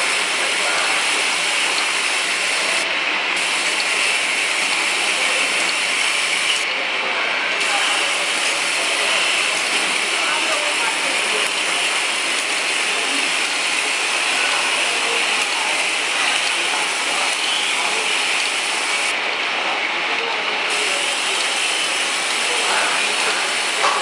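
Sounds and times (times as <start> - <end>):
bottling machine clatter: 20.7 - 24.0.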